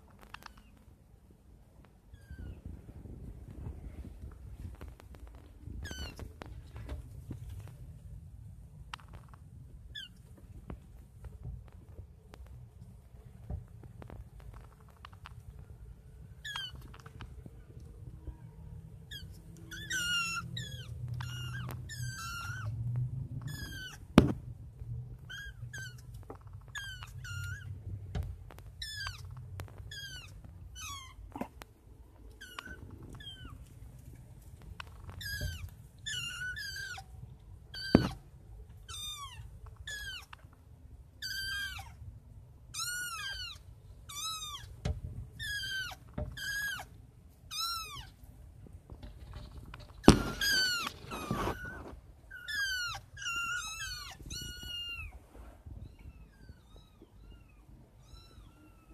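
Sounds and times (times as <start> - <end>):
kittens meowing: 5.7 - 6.5, 16.4 - 17.3, 18.5 - 22.8, 23.4 - 24.2, 25.2 - 27.8, 28.7 - 31.6, 32.2 - 33.8, 34.8 - 40.4, 41.2 - 42.0, 42.8 - 48.2, 49.8 - 58.9.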